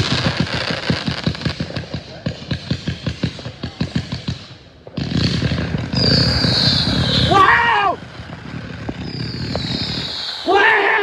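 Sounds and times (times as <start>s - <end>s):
fireworks cake firing shots: 0.0s - 11.0s
comets launching with rushing hiss: 5.0s - 11.0s
falling firework whistle: 5.1s - 11.0s.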